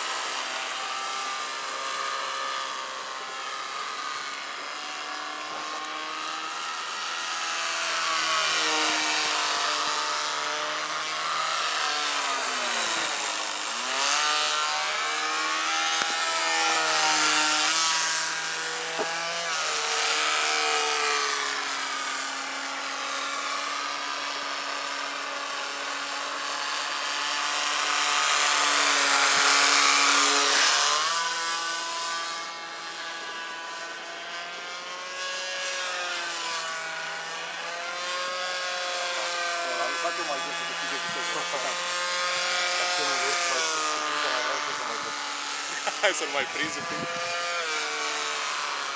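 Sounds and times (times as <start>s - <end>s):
model airplane motor buzzing: 0.0s - 48.9s.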